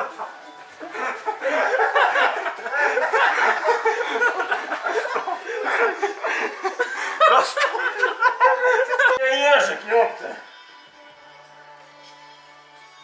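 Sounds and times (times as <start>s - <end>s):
people laughing: 0.0s - 9.3s.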